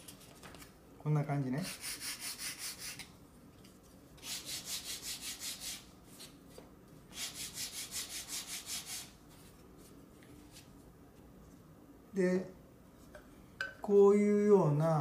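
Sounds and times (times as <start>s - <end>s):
sandpaper rubbing on wood: 1.6s - 3.0s, 4.2s - 5.9s, 7.1s - 9.2s.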